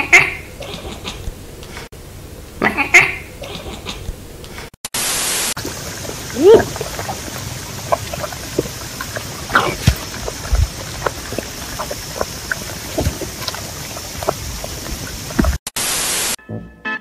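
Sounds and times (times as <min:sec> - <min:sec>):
steady hiss: 0:04.0 - 0:16.4
animals sucking on milk bottles: 0:05.5 - 0:15.6
music: 0:16.4 - 0:17.0.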